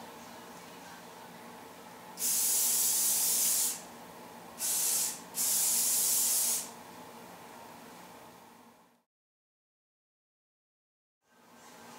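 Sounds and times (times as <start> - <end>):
aerosol hairspray spraying: 2.2 - 3.8, 4.6 - 6.7.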